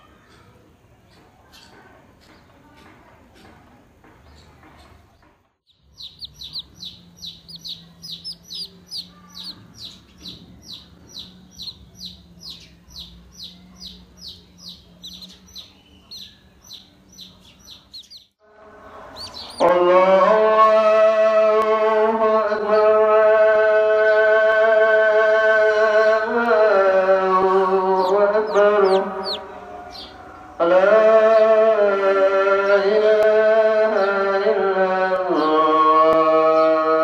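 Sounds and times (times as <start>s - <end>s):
chick peeping: 5.7s - 18.3s, 19.0s - 19.8s, 26.4s - 30.2s.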